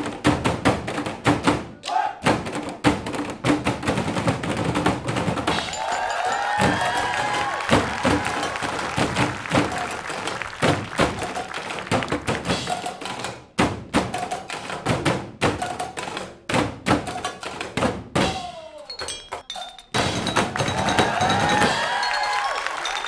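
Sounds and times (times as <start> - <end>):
drumming on metal pots: 3.4 - 9.8, 18.2 - 23.0.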